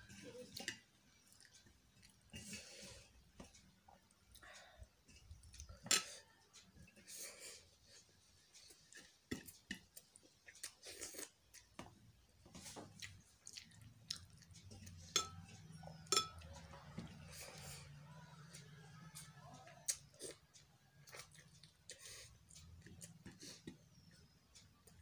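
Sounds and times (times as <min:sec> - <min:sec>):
person chewing: 0:00.6 - 0:02.8, 0:07.9 - 0:11.9, 0:12.6 - 0:16.1, 0:19.8 - 0:24.2.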